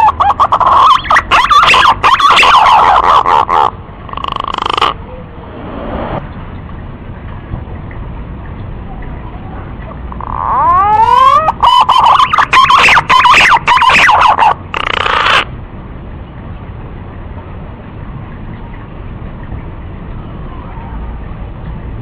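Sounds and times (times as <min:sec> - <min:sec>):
pigeon whistled song: 0:00.0 - 0:03.7, 0:10.2 - 0:15.5.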